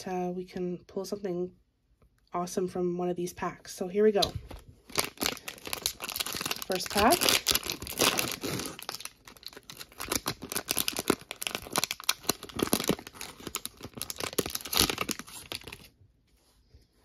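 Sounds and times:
plastic wrapper tearing and crinkling: 4.2 - 15.9.

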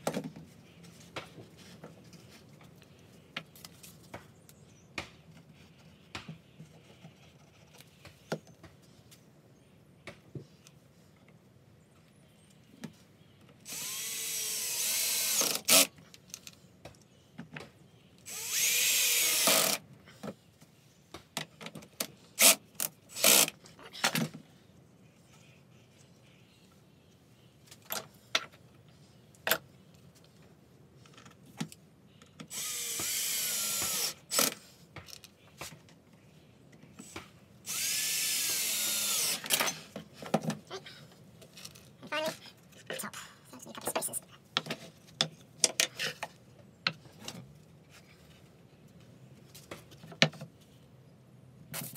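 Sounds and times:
cordless drill driving screws: 13.7 - 15.9, 18.3 - 19.8, 22.4 - 23.5, 32.5 - 34.6, 37.7 - 39.8.

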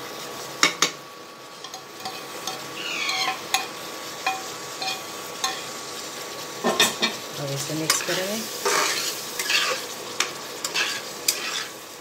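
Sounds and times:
gravy sizzling: 0.0 - 12.0
food scraped from frying pan: 7.9 - 11.8.

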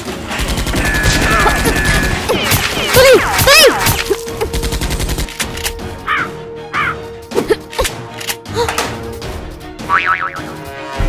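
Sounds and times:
music: 0.0 - 11.0
automatic gunfire: 0.3 - 3.6.

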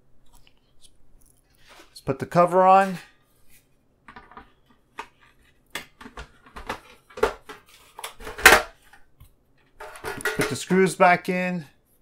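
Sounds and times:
metal cover clacking: 9.8 - 10.7.

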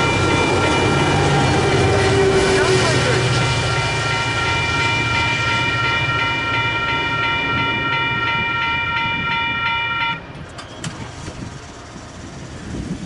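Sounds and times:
railroad crossing bell ringing: 0.0 - 10.3
train rumbling: 0.0 - 13.0.

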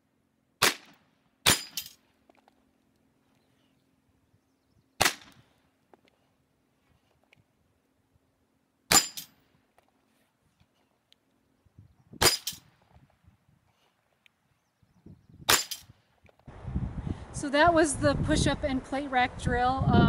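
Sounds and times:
pistol shots: 0.6 - 1.9, 5.0 - 5.4, 8.9 - 9.3, 15.5 - 15.9
sharp crack: 0.6 - 2.0, 5.0 - 5.5, 8.9 - 9.5, 12.2 - 12.8, 15.5 - 16.0.

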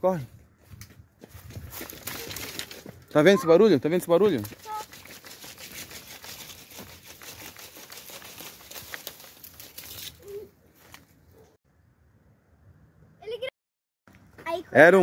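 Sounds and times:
crackling in dry vegetation: 0.6 - 3.3, 4.1 - 11.2.

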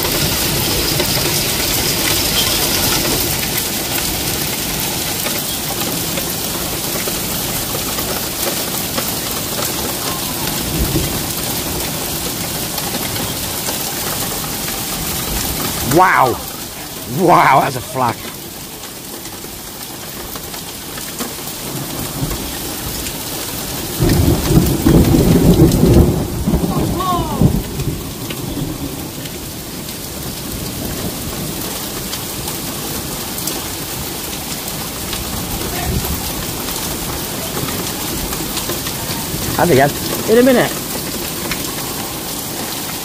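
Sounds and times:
heavy rain and hail pelting: 0.0 - 43.0
thunder rumbling: 24.0 - 28.1.

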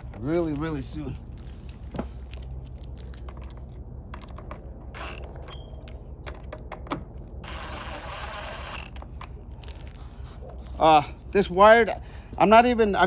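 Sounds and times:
cordless drill driving screw: 7.4 - 9.0.

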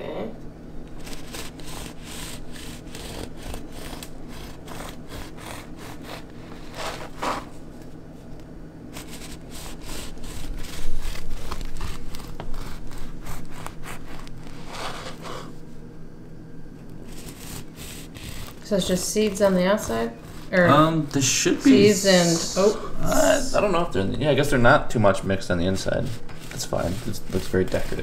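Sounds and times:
knife sawing through bread: 1.0 - 7.6, 8.9 - 15.6, 17.0 - 21.9, 26.0 - 28.0.

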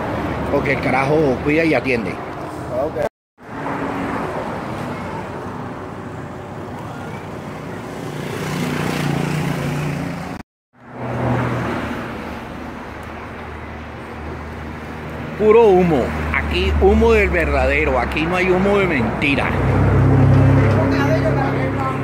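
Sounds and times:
road traffic passing: 0.0 - 22.0
engine humming by: 13.4 - 22.0.

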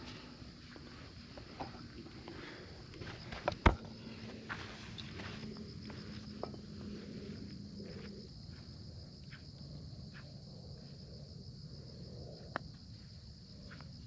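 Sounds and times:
faint low hum: 0.0 - 14.0
insects trilling: 0.0 - 14.0.

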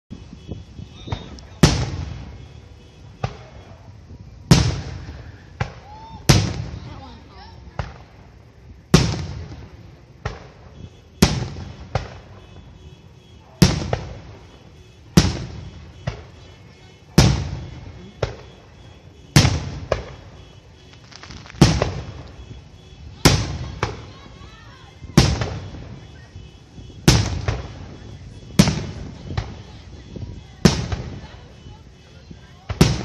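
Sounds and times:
firework shells bursting: 17.2 - 24.0
smaller firework pop: 19.4 - 22.4.

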